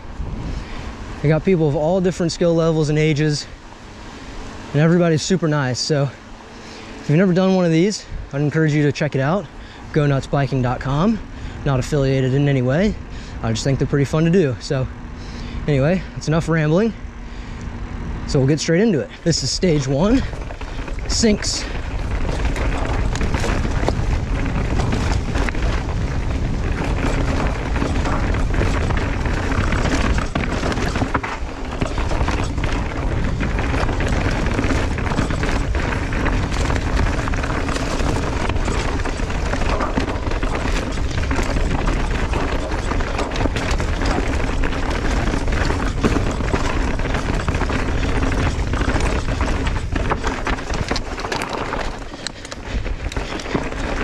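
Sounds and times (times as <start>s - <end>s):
bike rattling and knocking: 0.0s - 3.7s, 4.4s - 17.6s, 18.2s - 54.0s
wind rumble on microphone: 0.0s - 5.8s, 7.0s - 54.0s
bike tyre noise: 0.0s - 54.0s.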